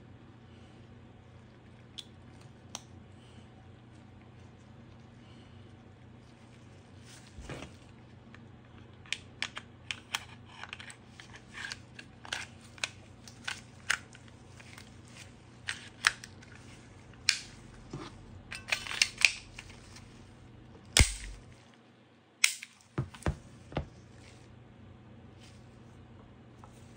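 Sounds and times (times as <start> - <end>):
pistol parts clicking: 17.2 - 17.5, 18.5 - 19.7, 21.0 - 21.4, 22.4 - 22.8
loud sharp snap: 21.0 - 21.4.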